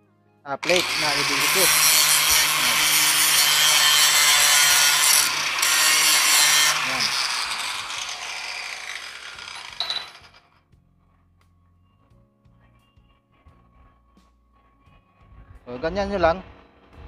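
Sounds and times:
angle grinder grinding metal: 0.6s - 10.5s.

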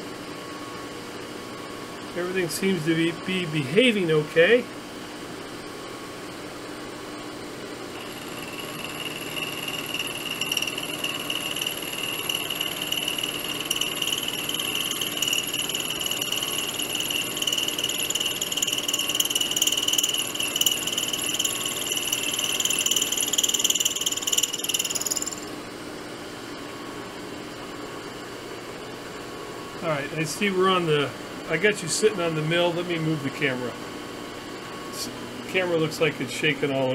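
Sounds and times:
milling machine motor hum: 7.6s - 25.6s
end mill cutting steel whine: 7.9s - 25.5s.

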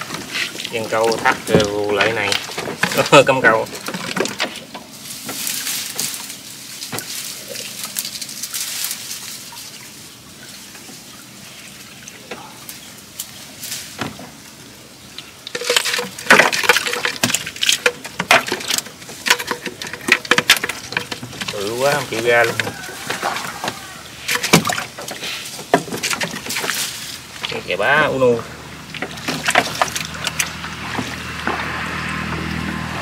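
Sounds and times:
wire fish trap rattling: 15.4s - 27.8s, 28.8s - 31.4s.

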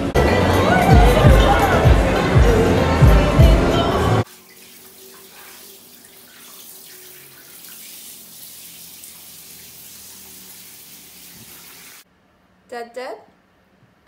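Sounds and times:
water running into bathtub: 4.2s - 12.0s.

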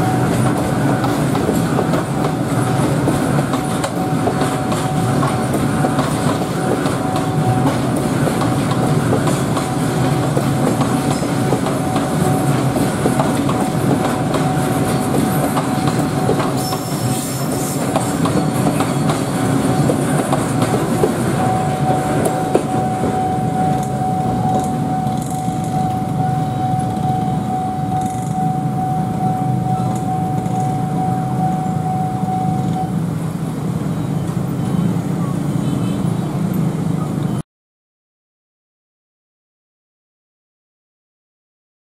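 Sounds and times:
steady high tone: 0.0s - 33.2s
train rumbling on rails: 0.0s - 37.4s
wheels clicking over rail joints: 0.3s - 16.9s.

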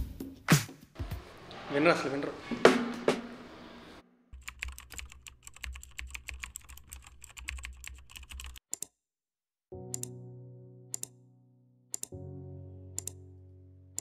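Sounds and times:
mechanical keyboard key clicks: 9.9s - 10.1s, 12.0s - 12.2s.

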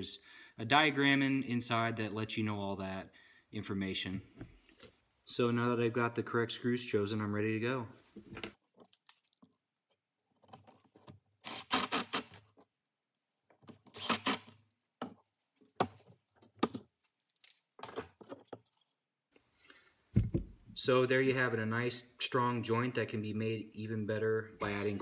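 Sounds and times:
handling of boards and screws: 8.2s - 11.4s, 14.5s - 19.1s
drill driving screws into wood: 11.4s - 12.5s, 13.9s - 14.6s.

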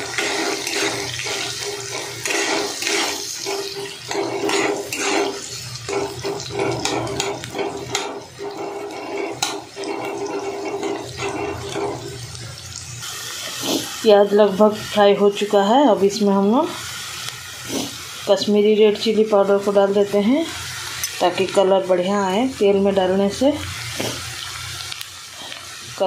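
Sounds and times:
spatula scraping pan: 0.0s - 12.4s
onions sizzling in hot oil: 0.0s - 26.0s.

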